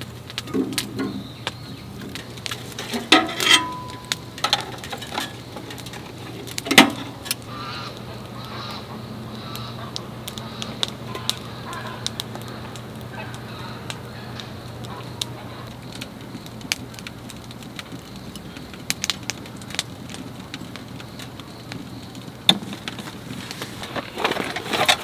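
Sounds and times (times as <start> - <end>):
firewood crackling and popping: 0.0 - 25.0
metal tongs scraping stove: 0.4 - 7.4, 11.1 - 11.4, 23.3 - 25.0
metal clank with squeal: 0.5 - 1.3, 2.1 - 6.1.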